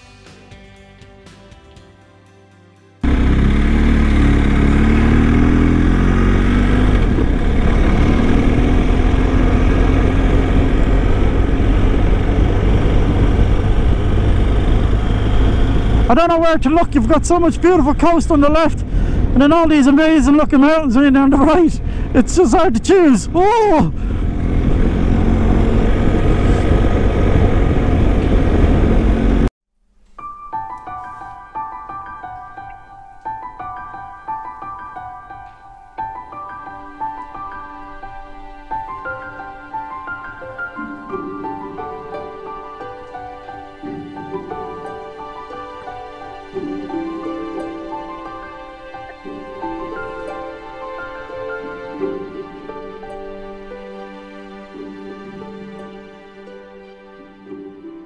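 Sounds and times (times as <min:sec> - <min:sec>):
motorcycle engine accelerating: 0:03.0 - 0:20.0, 0:20.8 - 0:29.5
wind rush on microphone: 0:07.0 - 0:16.1, 0:18.8 - 0:19.4, 0:23.9 - 0:29.5
gentle piano music: 0:30.1 - 0:58.0.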